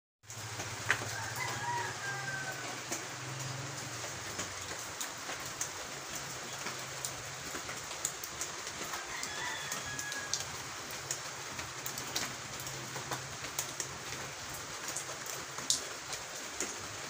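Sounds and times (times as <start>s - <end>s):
steady rain falling: 0.2s - 17.0s
rooster crowing: 1.0s - 3.4s, 8.8s - 10.7s.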